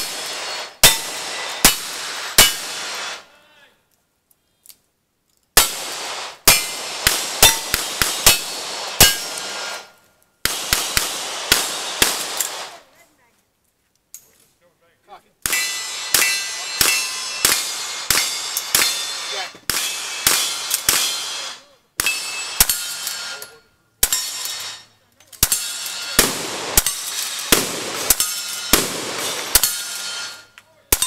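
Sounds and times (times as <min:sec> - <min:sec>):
steel targets clanging: 0:00.0 - 0:02.8, 0:07.4 - 0:09.5, 0:15.4 - 0:31.0
rifle shots: 0:00.0 - 0:03.2, 0:05.6 - 0:12.9, 0:15.4 - 0:23.4, 0:25.4 - 0:31.0.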